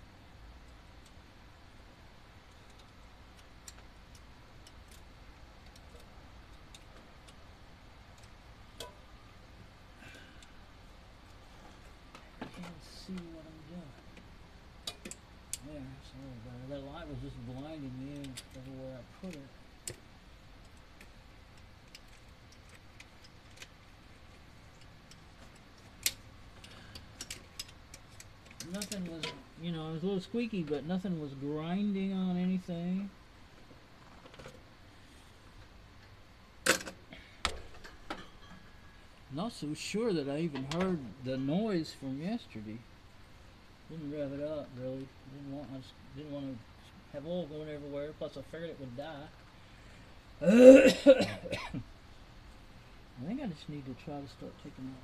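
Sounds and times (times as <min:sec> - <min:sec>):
low steady hum: 0:00.0 - 0:55.0
metallic clicks of rocker arms: 0:18.1 - 0:29.4.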